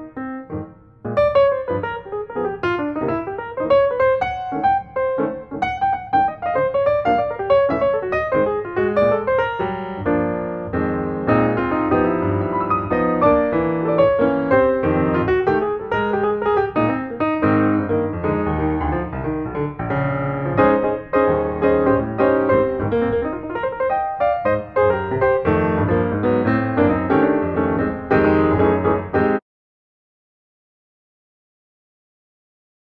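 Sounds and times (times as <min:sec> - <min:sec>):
piano music: 0:00.0 - 0:29.4.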